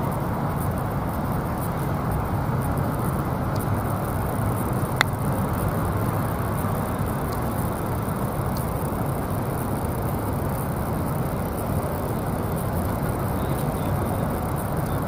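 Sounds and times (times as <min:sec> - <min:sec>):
distant traffic rumble: 0:00.0 - 0:15.0.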